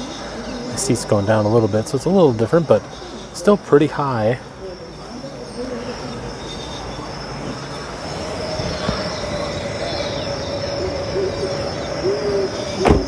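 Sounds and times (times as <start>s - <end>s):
steady hum: 0.7s - 13.0s.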